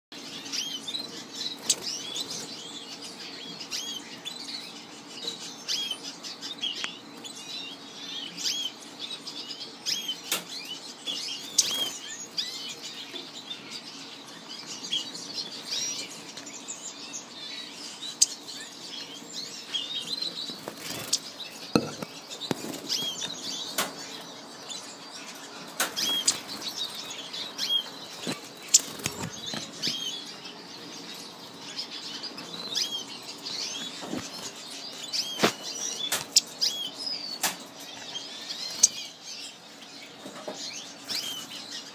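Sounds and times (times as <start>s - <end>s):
birds chirping: 0.1s - 41.9s
birds knocking on cage bars: 21.8s - 22.7s.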